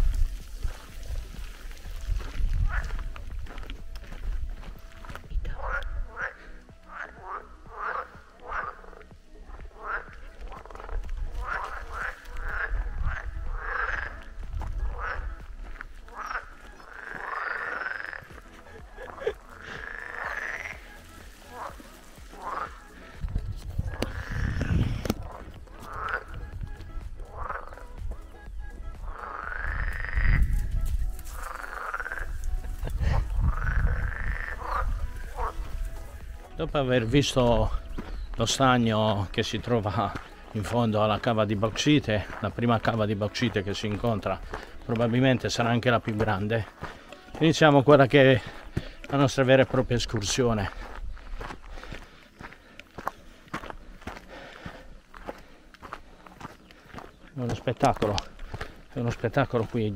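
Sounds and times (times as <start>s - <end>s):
frogs croaking in chorus: 0.3s - 59.9s.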